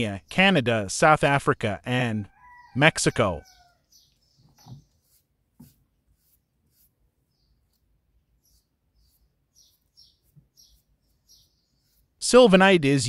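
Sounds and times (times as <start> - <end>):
faint high bird chirps: 3.4 - 5.2, 7.2 - 12.1.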